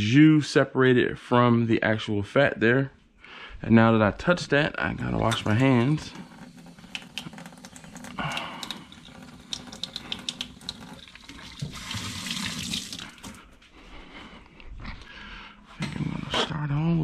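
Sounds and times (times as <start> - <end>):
tap water running into sink: 5.2 - 13.4
hands washing under water: 5.2 - 13.5.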